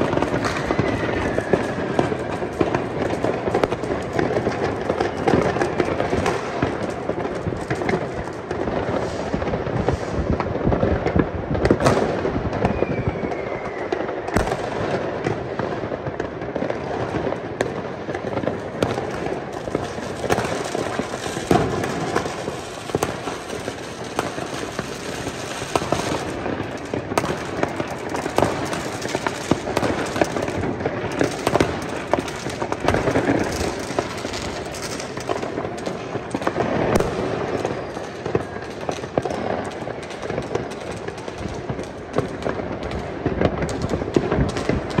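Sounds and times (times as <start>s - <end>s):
falling firework whistle: 0.0s - 3.8s, 11.7s - 15.1s, 36.5s - 40.1s
fireworks bangs and crackles: 0.0s - 45.0s.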